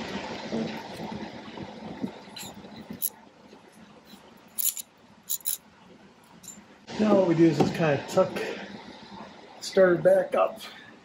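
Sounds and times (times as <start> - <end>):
hand tool clinking on metal nut: 4.6 - 5.6.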